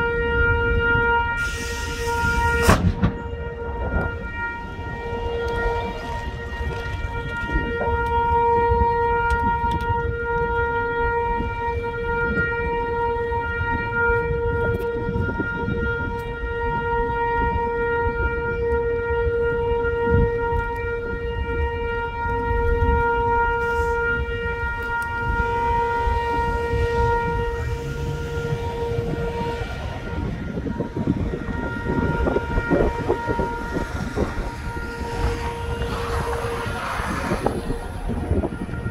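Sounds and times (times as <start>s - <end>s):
horn steady note: 0.0s - 38.9s
low rumbling noise: 23.7s - 38.9s.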